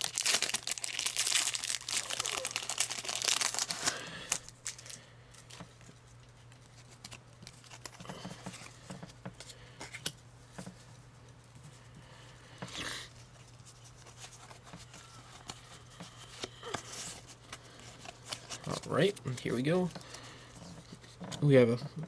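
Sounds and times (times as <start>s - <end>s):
foil wrapper tearing and crinkling: 0.0s - 5.5s, 6.7s - 8.0s
cards rustling and ticking: 0.0s - 10.8s, 13.4s - 21.5s.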